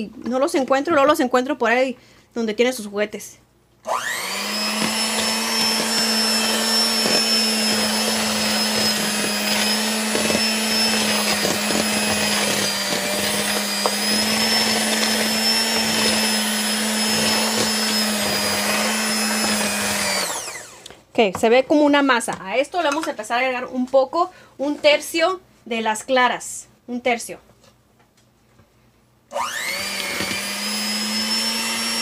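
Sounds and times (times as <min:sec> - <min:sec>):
electric hand mixer running: 0:03.9 - 0:20.9, 0:29.3 - 0:32.0.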